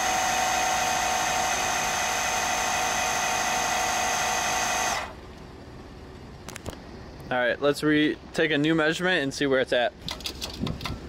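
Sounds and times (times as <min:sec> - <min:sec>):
air compressor whining: 0:00.0 - 0:05.8.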